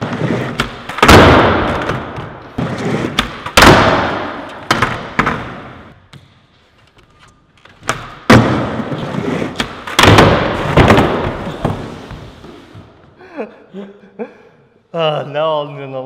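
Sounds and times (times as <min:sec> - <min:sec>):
skateboard and skater slamming ramp: 0:00.0 - 0:05.9, 0:07.8 - 0:12.8
skateboard wheels rolling on plywood: 0:00.0 - 0:06.0, 0:07.7 - 0:13.0.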